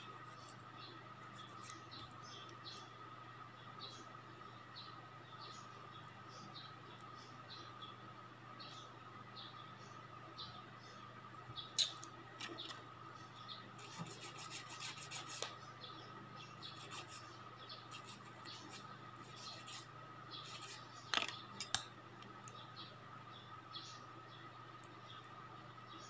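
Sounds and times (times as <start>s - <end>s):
nail file rasping: 13.8s - 15.5s, 16.6s - 17.3s, 17.9s - 20.8s.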